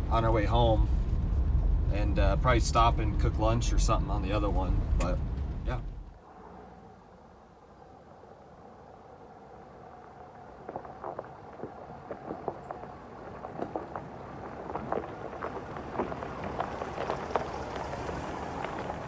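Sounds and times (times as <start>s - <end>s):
pickup truck engine: 0.0s - 6.8s, 12.5s - 19.0s
tyres crunching over rocks: 10.3s - 19.0s.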